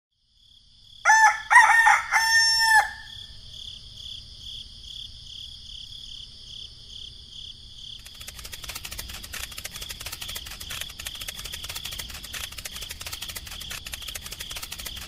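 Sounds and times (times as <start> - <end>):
rooster crowing: 1.0 - 3.3.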